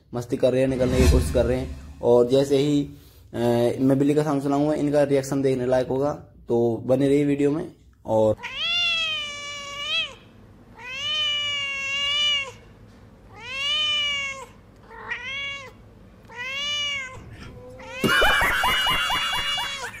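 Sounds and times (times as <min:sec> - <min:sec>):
cat meowing: 0:08.4 - 0:10.2, 0:10.8 - 0:12.6, 0:13.3 - 0:18.4
man laughing: 0:17.8 - 0:20.0.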